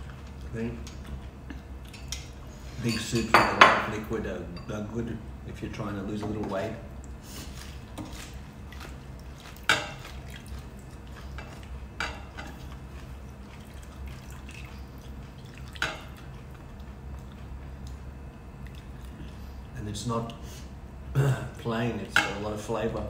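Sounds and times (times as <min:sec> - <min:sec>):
liquid splashes: 0:07.0 - 0:17.9.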